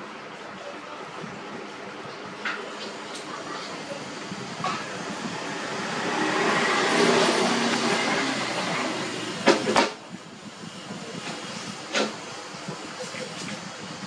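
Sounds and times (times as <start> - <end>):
vehicle passing: 5.2 - 9.2.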